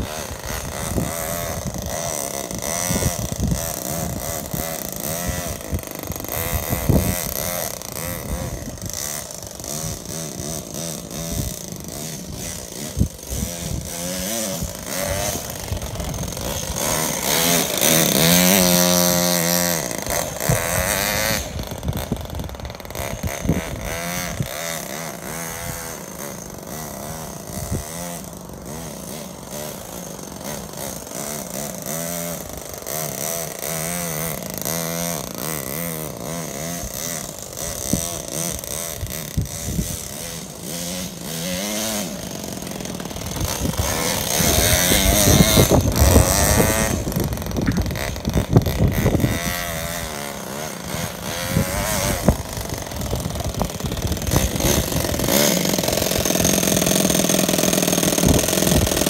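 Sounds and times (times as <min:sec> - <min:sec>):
model engine revving: 0:00.0 - 0:59.0.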